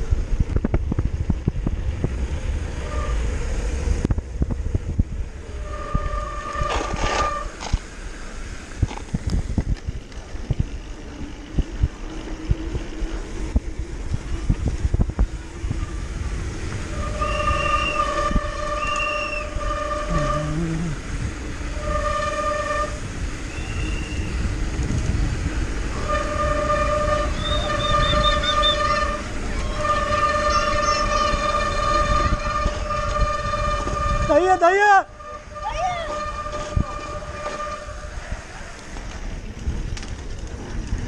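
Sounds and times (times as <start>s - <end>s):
low rumble: 0.0s - 34.4s
horn blasts: 2.8s - 3.4s, 5.4s - 7.6s, 16.7s - 24.4s, 25.9s - 38.4s
mountain bike clattering: 8.7s - 13.4s, 38.7s - 41.0s.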